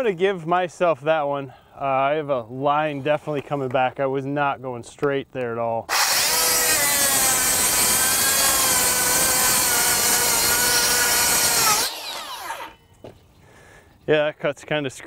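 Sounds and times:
circular saw cutting wood: 5.9s - 12.8s.

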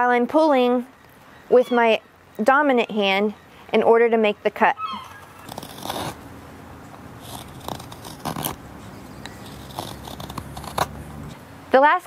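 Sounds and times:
knife scraping wood: 5.0s - 6.2s, 6.9s - 11.4s.

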